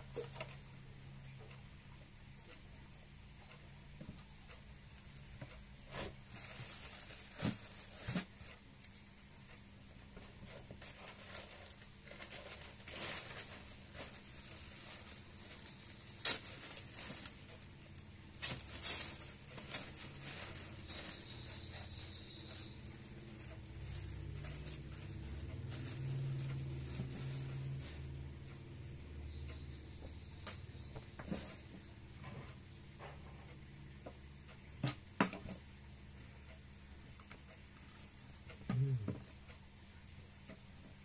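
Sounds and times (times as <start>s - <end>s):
low steady hum: 0.0s - 41.0s
sharp plastic crackles: 5.9s - 9.1s, 10.4s - 21.5s
plastic bags crinkling: 6.3s - 8.5s, 10.7s - 22.0s.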